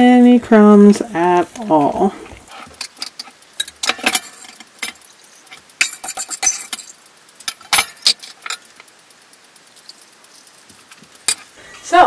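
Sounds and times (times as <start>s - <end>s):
steel bowls clinking and knocking: 2.8s - 8.9s.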